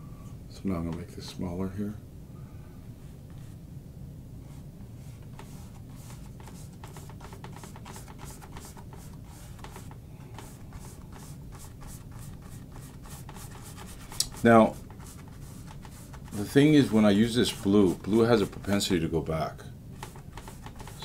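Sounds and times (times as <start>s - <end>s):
paintbrush scrubbing canvas: 4.5s - 19.0s, 19.9s - 21.0s.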